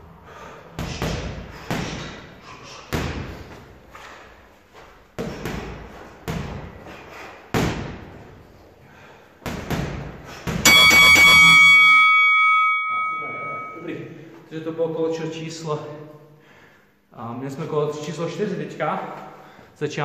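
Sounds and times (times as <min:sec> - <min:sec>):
electronic timer bell ringing: 0:10.7 - 0:13.8.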